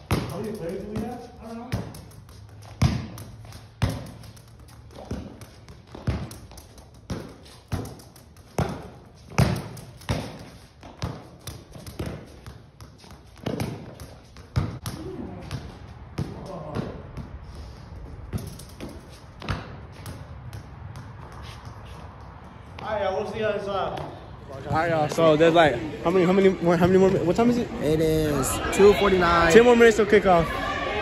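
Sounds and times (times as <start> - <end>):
ball kicks on concrete: 0.0 - 22.9.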